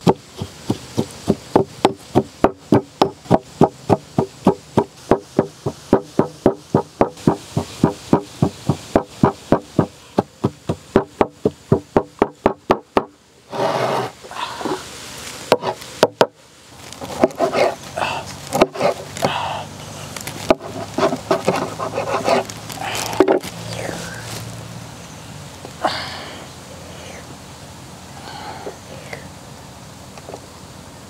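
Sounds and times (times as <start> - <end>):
pestle pounding in a mortar: 0.0 - 13.1
soft handling sounds: 16.8 - 24.6.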